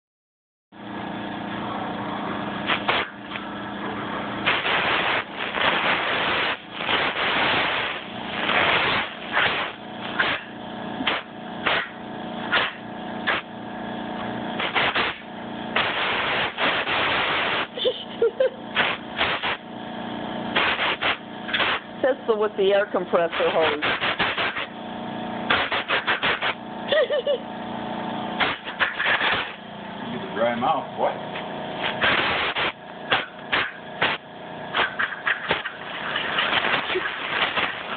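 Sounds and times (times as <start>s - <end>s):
air compressor humming: 0.8s - 37.9s
blow gun hissing bursts: 2.7s - 3.2s, 4.4s - 11.9s, 12.5s - 13.5s, 14.6s - 19.7s, 20.5s - 21.9s, 22.8s - 24.8s, 25.5s - 27.3s, 28.4s - 29.6s, 31.8s - 37.9s.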